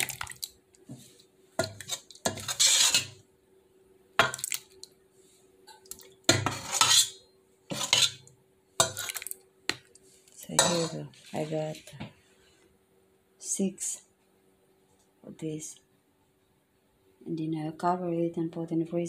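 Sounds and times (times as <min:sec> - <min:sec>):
metal ladle scraping metal pot: 0:01.6 - 0:03.2, 0:06.3 - 0:09.2, 0:10.5 - 0:11.8.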